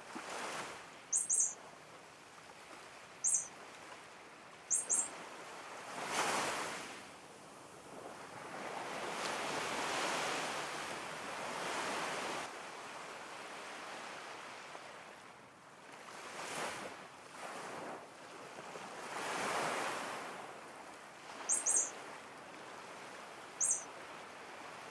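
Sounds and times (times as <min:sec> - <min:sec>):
wind gusts: 0:00.0 - 0:14.8, 0:16.1 - 0:24.9
high bird chirps: 0:01.1 - 0:01.6, 0:03.2 - 0:03.5, 0:04.7 - 0:05.1, 0:21.5 - 0:21.9, 0:23.6 - 0:23.9.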